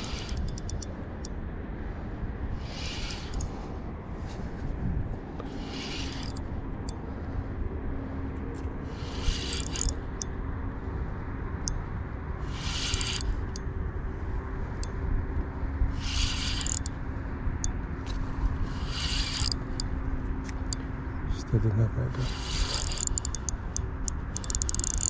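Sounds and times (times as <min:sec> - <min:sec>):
fishing reel cranking: 0:00.0 - 0:00.9, 0:02.6 - 0:03.7, 0:05.5 - 0:07.0, 0:08.9 - 0:10.3, 0:12.4 - 0:13.6, 0:15.9 - 0:17.0, 0:18.6 - 0:19.9, 0:22.3 - 0:25.0
steady low rumble: 0:00.0 - 0:25.0
short hissing buzzes: 0:02.6 - 0:03.4, 0:05.5 - 0:06.4, 0:08.9 - 0:09.9, 0:12.4 - 0:13.3, 0:18.7 - 0:19.6, 0:22.2 - 0:23.4.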